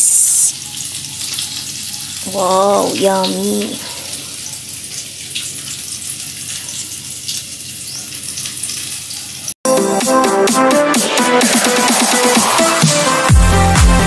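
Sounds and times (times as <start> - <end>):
electronic dance music: 9.7 - 14.0.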